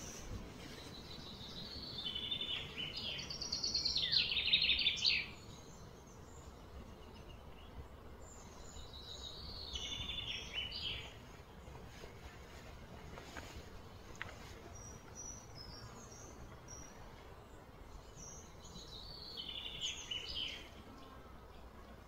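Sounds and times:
steady outdoor hum: 0.0 - 22.0
bird singing high trills: 0.8 - 7.7.

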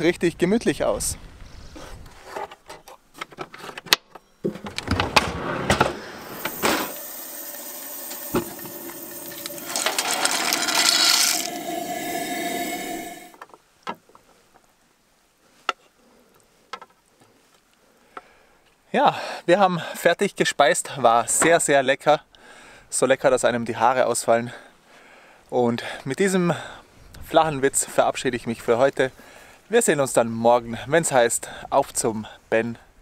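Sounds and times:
faint hum: 5.8 - 13.4
gas stove hissing: 5.9 - 13.4.

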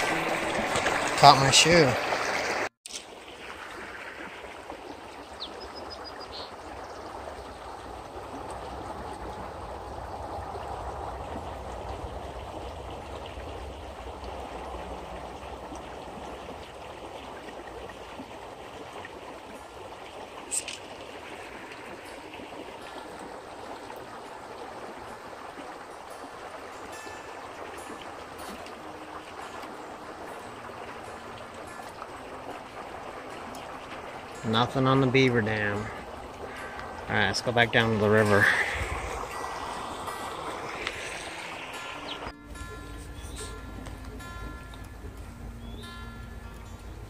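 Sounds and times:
creek water running: 0.0 - 47.0
faint high chirp: 41.3 - 43.8.

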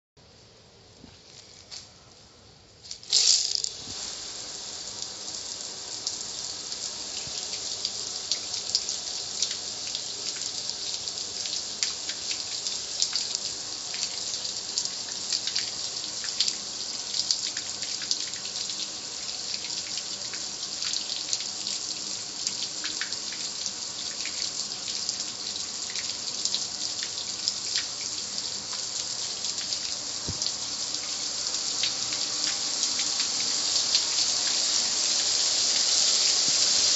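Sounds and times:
water spray hissing: 2.9 - 16.5, 28.8 - 36.9.

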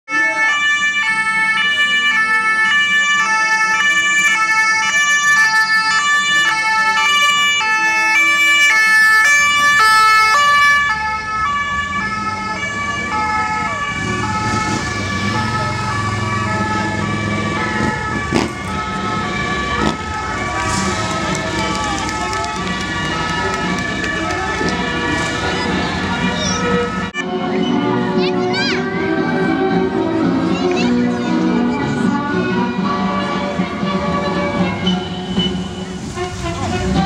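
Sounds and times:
siren-like alternating tones: 8.2 - 27.3
motorbike engines running: 9.4 - 27.1.

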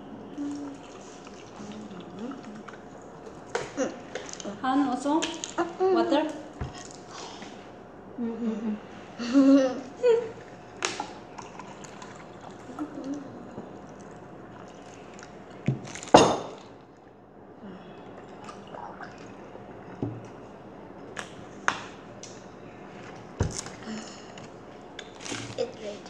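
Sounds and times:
child sipping through a straw: 0.4 - 2.8.

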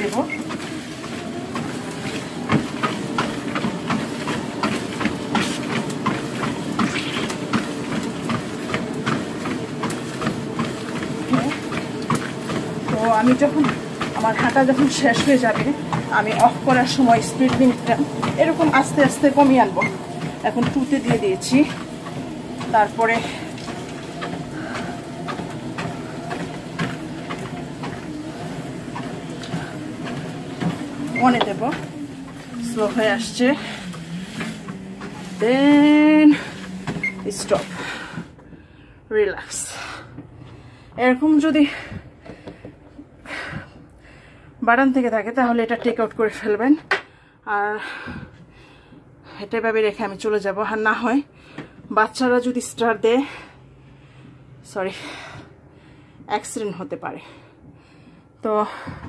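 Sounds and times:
footfalls on treadmill belt: 0.0 - 38.6
treadmill motor humming: 0.0 - 59.0.

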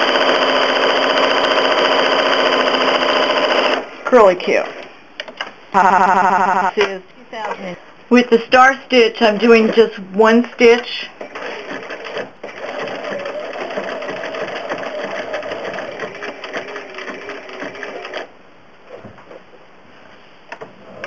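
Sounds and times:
sewing machine stitching fast: 0.0 - 3.8, 11.2 - 18.3.

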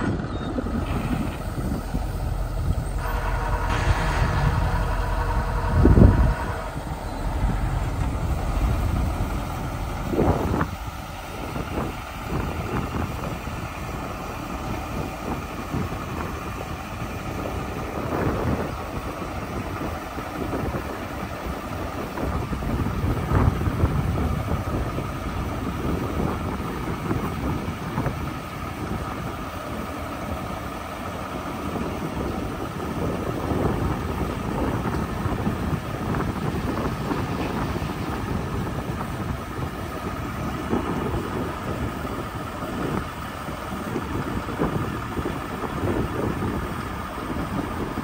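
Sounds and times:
hydraulic hoist: 0.0 - 17.6
truck engine running: 0.0 - 48.0.

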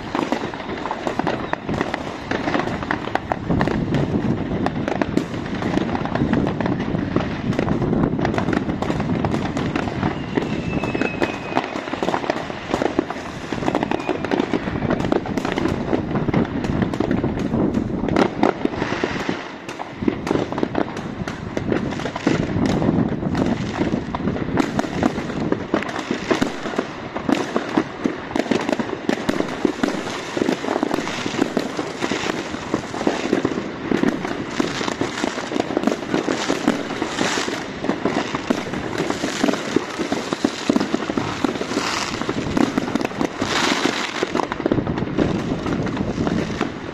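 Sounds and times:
faint firework whistle: 0.0 - 3.2, 8.5 - 15.7
fireworks and firecrackers banging: 0.0 - 46.9.

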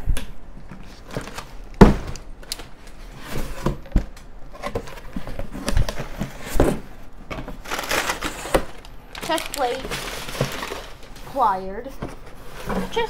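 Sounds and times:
packing paper rustling: 0.7 - 13.0
cardboard flaps knocking: 1.2 - 2.2.

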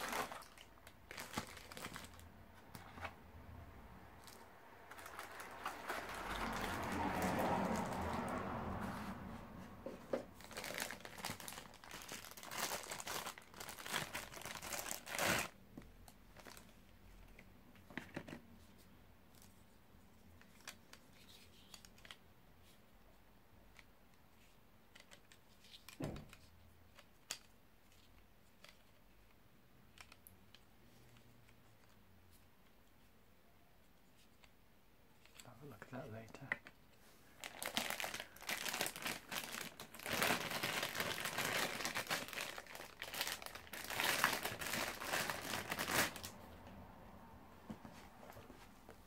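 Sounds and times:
plastic packaging crinkling: 0.0 - 2.8, 4.2 - 8.1, 10.4 - 16.7, 37.3 - 46.4.

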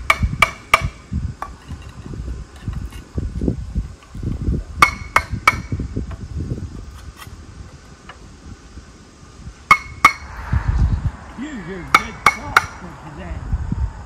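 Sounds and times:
low rumble: 10.1 - 14.0.

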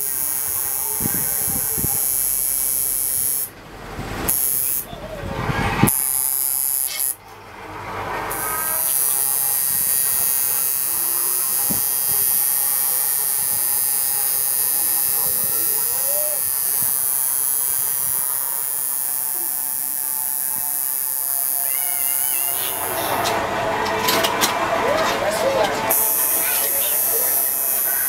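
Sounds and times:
tattoo machine buzzing: 0.0 - 3.5, 4.3 - 4.9, 5.9 - 7.2, 8.3 - 23.1, 25.9 - 28.0.

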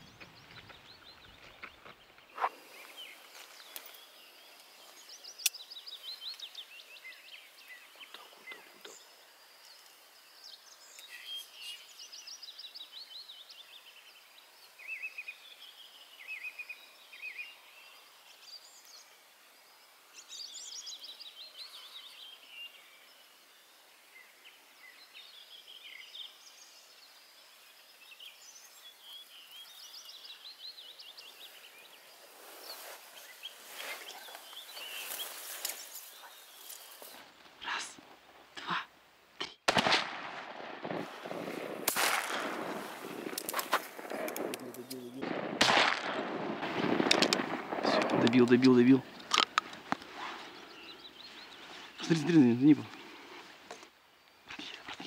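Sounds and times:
birds chirping and singing: 0.0 - 19.2, 20.2 - 38.0, 42.4 - 45.4, 46.8 - 52.9
sharp clicks: 43.2 - 48.4, 49.1 - 50.1.

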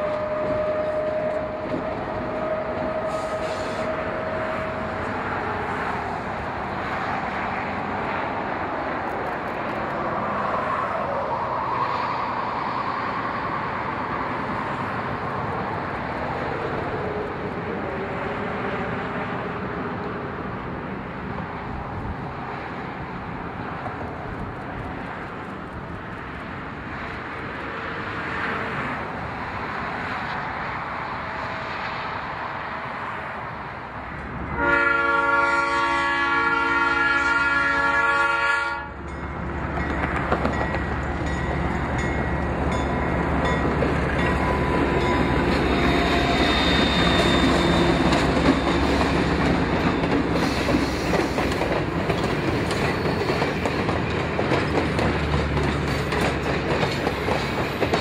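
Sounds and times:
train horn blast: 0.0 - 5.9, 34.5 - 39.0, 44.4 - 49.2
train wheels clattering on rails: 0.0 - 6.0, 39.0 - 58.0.

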